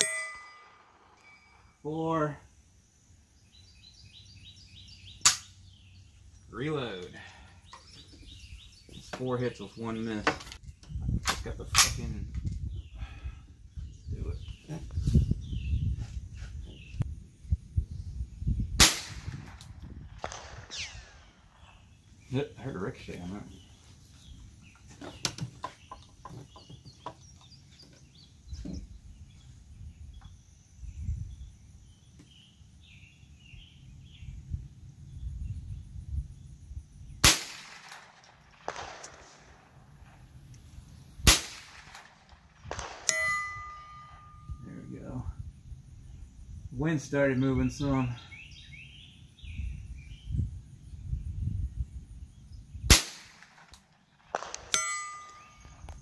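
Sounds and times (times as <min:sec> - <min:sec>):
sharp ringing ping: 0:00.0 - 0:01.8, 0:43.1 - 0:44.7, 0:54.6 - 0:55.8
birds chirping: 0:00.0 - 0:56.0
wind buffeting microphone: 0:10.6 - 0:22.0, 0:27.5 - 0:37.3, 0:38.6 - 0:53.5
rifle shot: 0:18.8 - 0:21.8, 0:37.2 - 0:40.3, 0:41.2 - 0:44.4, 0:52.9 - 0:55.7.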